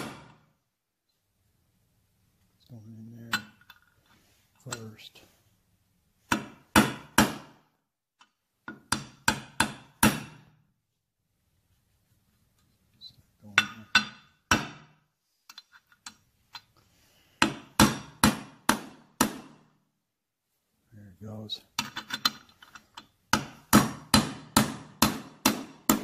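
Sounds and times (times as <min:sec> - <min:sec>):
hammer striking metal: 0:00.0 - 0:00.4, 0:06.3 - 0:07.6, 0:08.7 - 0:10.5, 0:13.5 - 0:15.0, 0:17.4 - 0:19.7, 0:23.3 - 0:26.0.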